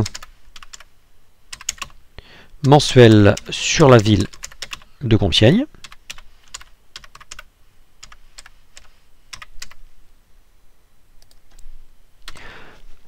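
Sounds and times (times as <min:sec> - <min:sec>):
typing on computer keyboard: 0:00.0 - 0:00.9, 0:01.5 - 0:02.0, 0:03.3 - 0:04.9, 0:05.8 - 0:09.8.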